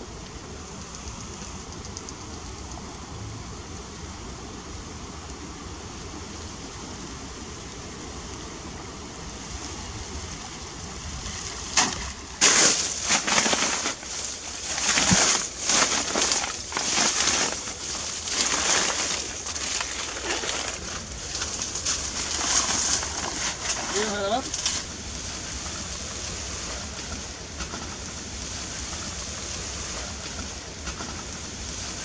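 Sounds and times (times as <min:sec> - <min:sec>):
low rush of water: 0:00.0 - 0:32.0
water splashing: 0:11.1 - 0:32.0.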